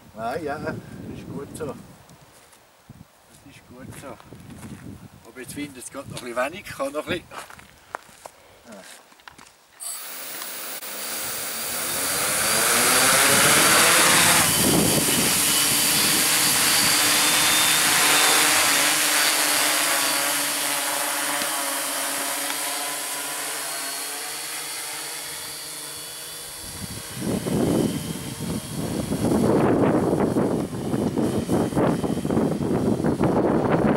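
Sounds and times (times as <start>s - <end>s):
drone motors and propellers whining: 9.8s - 33.9s
rotor wash gusts on microphone: 10.8s - 20.2s.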